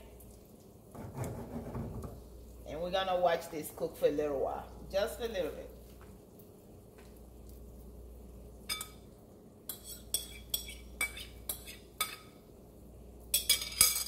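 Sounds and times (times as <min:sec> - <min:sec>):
metal spoon clinking on glass bowl: 0:08.7 - 0:09.0, 0:13.3 - 0:14.0.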